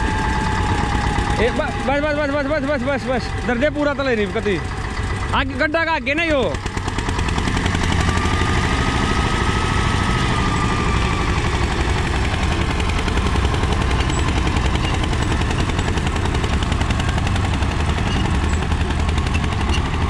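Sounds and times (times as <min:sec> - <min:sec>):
tractor diesel engine under load: 0:00.0 - 0:20.0.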